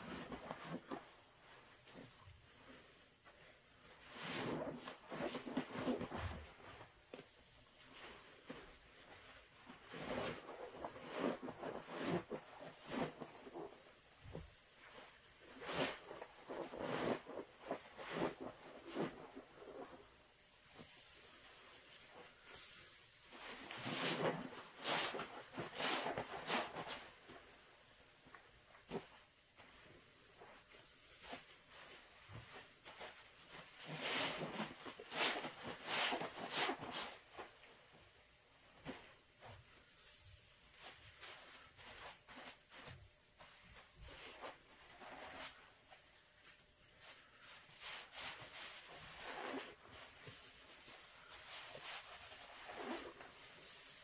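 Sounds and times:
foam squishing: 7.8 - 38.1, 38.7 - 54.0
wet squishing of soap foam: 48.5 - 54.0.

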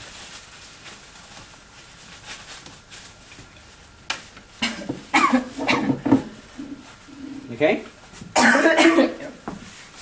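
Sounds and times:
woman coughing: 4.6 - 6.0, 8.4 - 9.3.

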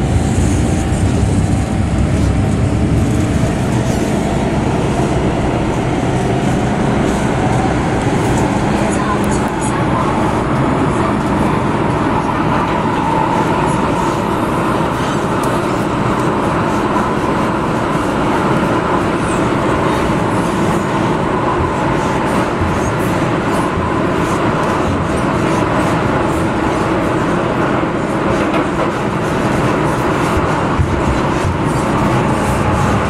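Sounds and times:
train wheels rumbling on rail: 0.0 - 33.0.

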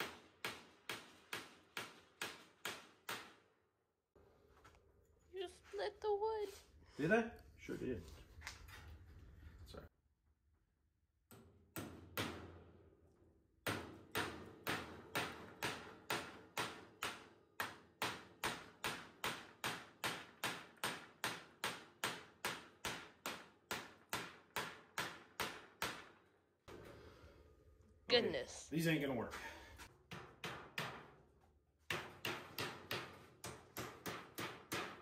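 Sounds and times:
hammer striking wire mesh: 0.0 - 3.5, 11.3 - 12.8, 13.6 - 26.8, 30.1 - 35.0.

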